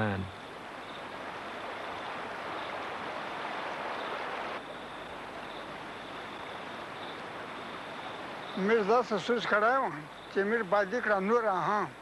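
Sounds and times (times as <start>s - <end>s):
water rushing over rocks: 1.1s - 4.6s.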